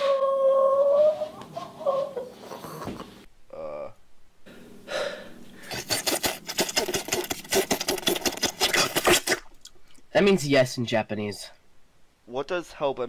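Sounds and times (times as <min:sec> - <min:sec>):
slurping through metal straw: 0:05.6 - 0:09.5.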